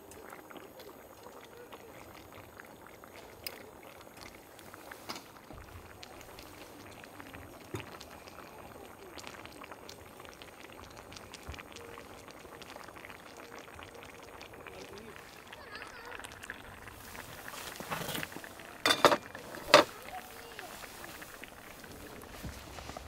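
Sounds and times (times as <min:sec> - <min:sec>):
stew simmering and bubbling: 0:00.0 - 0:23.0.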